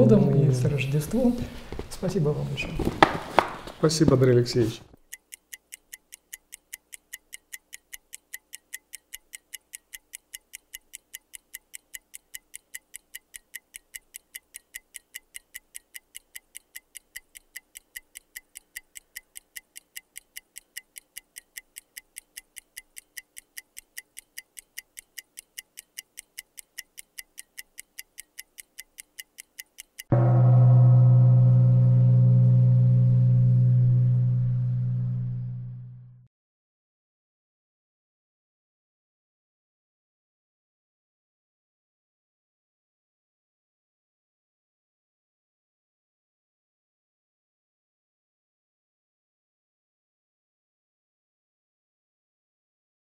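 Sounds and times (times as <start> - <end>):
clock ticking: 5.0 - 30.5
low ringing tone: 30.1 - 36.3.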